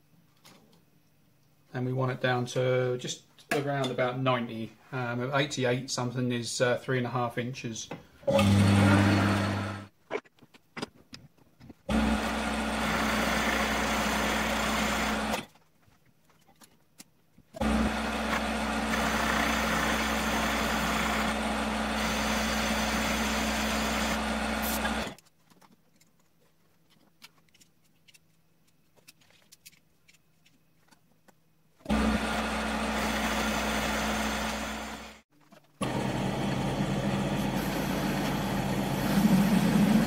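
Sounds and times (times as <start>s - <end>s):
metal lathe cutting: 8.4s - 9.9s, 11.9s - 15.4s, 17.6s - 25.2s, 31.9s - 35.2s, 35.8s - 40.0s.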